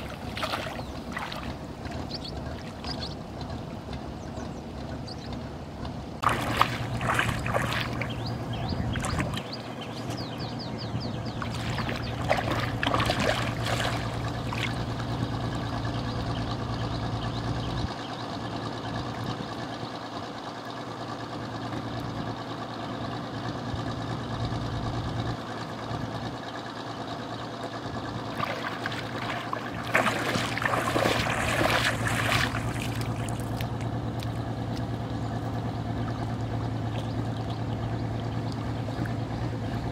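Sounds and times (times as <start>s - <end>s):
wading through river water: 0.0s - 3.9s, 6.2s - 15.8s, 27.7s - 39.9s
low engine hum: 0.0s - 39.9s.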